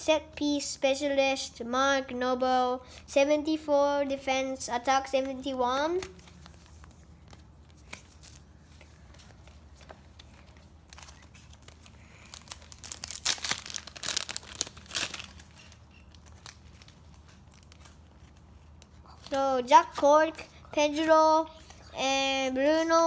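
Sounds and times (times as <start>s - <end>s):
faint card handling: 5.1s - 20.0s
foil wrapper crinkling and tearing: 10.8s - 18.8s.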